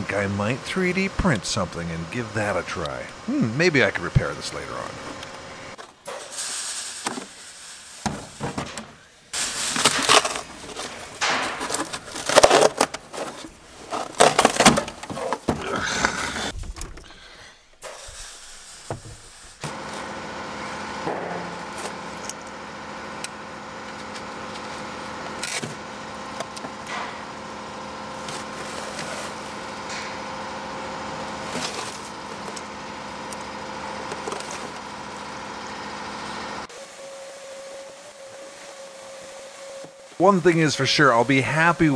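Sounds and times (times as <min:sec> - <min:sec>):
steady machine hum: 0:00.0 - 0:41.9
handling sounds: 0:08.2 - 0:17.1, 0:31.3 - 0:32.7
carpet ripping and scraping: 0:09.4 - 0:15.5.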